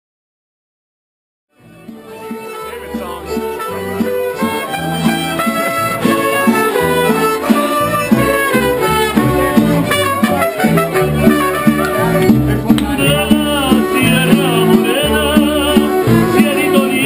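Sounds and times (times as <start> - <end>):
violin: 1.5 - 17.0
deep plucked bass: 1.6 - 17.0
guitars strummed and plucked: 1.6 - 17.0.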